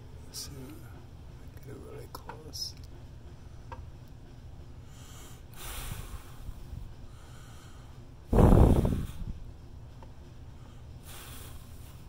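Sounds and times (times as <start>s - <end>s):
person breathing: 4.8s - 9.4s, 10.6s - 12.0s.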